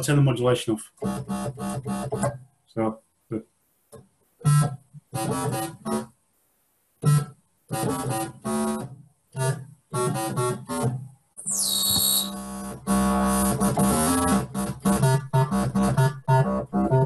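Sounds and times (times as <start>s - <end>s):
synthesizer notes: 9.4s - 17.0s.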